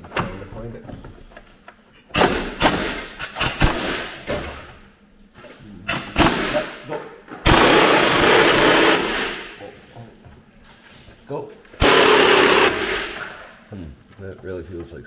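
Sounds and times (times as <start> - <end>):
impact wrench hammering: 2.1 - 4.4, 5.9 - 9.6, 11.8 - 13.4.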